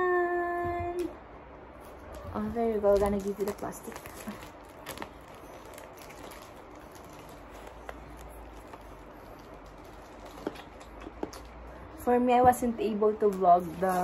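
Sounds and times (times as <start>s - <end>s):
steady low hum: 0.0s - 14.0s
plastic wrapping rustling: 1.7s - 11.7s, 13.1s - 14.0s.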